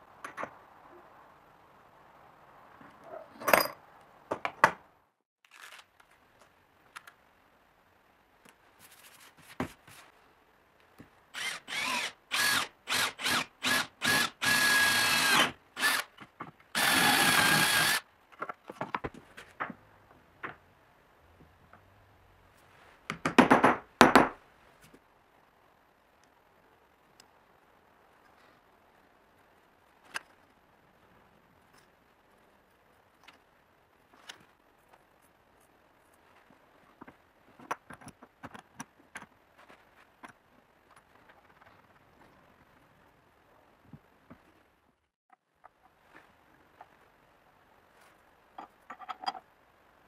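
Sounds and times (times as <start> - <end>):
cordless drill motor whine: 11.4 - 16.0, 16.8 - 18.0.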